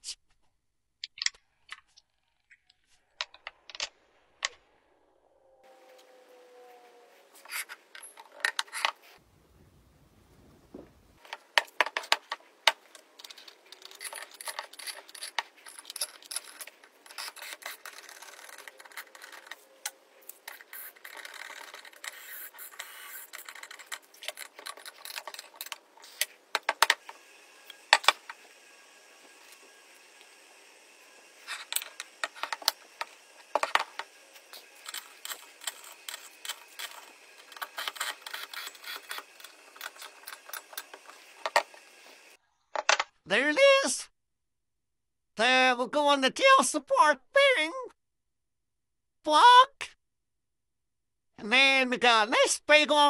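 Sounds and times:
metal parts clicking and knocking: 0:11.2 - 0:27.1, 0:31.4 - 0:41.8.

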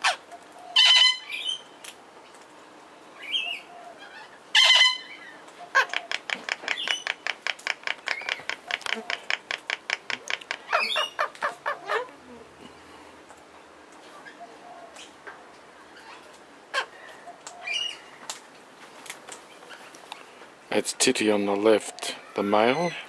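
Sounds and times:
parrot calls: 0:00.0 - 0:01.6, 0:03.2 - 0:12.2, 0:16.0 - 0:17.0
parrots chattering: 0:00.0 - 0:01.6, 0:03.2 - 0:12.4, 0:15.9 - 0:18.1.

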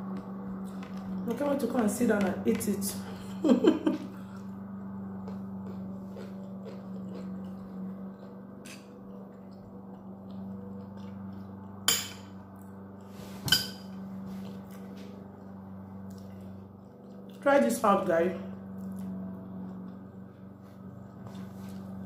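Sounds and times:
steady low hum: 0:00.0 - 0:22.0
cutlery clinking on a plate: 0:13.4 - 0:14.0.

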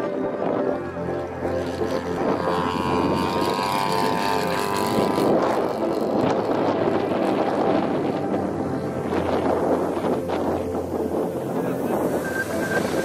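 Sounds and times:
model plane engine and propeller: 0:00.0 - 0:13.0.

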